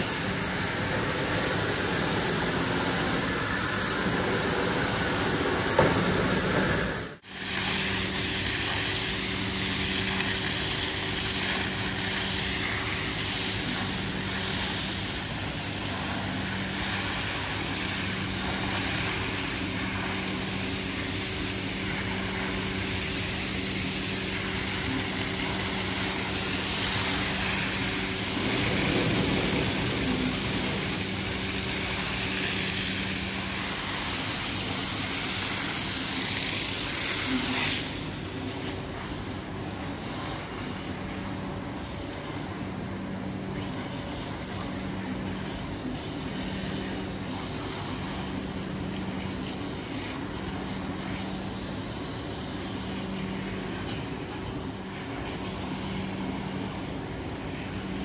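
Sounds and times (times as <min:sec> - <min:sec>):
motor hum: 0:19.7 - 0:33.8.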